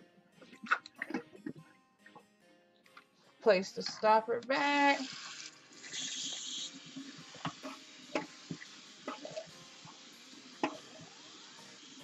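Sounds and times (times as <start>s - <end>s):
tap water running into sink: 3.8s - 12.0s.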